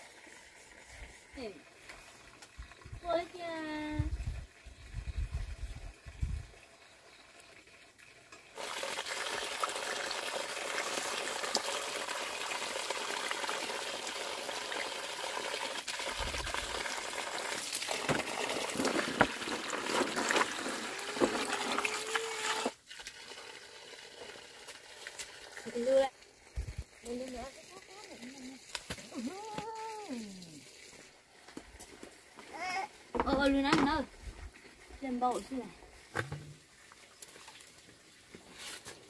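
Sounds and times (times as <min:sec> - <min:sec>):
water running: 0:00.0 - 0:38.2.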